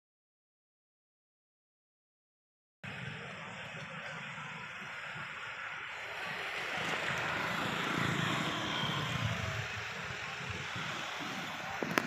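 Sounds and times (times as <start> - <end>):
vehicle passing on road: 2.8 - 12.0.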